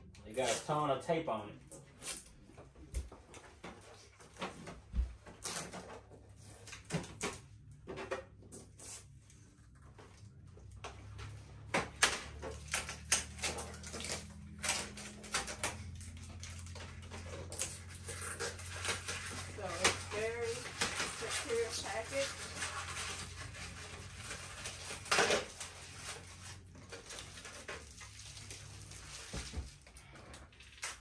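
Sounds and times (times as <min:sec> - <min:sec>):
packing tape being peeled: 0:01.8 - 0:02.4, 0:05.3 - 0:07.4, 0:11.9 - 0:31.0.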